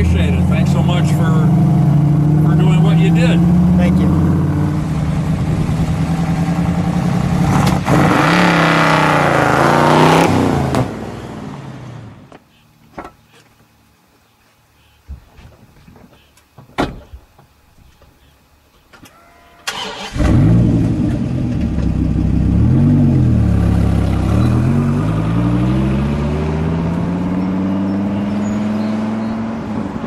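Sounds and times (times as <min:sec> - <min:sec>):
car engine cranking and revving: 0:00.0 - 0:12.2, 0:19.7 - 0:30.0.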